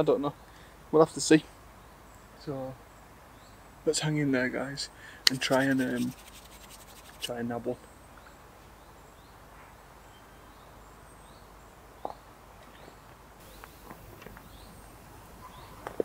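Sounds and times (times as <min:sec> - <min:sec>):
distant birds chirping: 0:04.9 - 0:16.0.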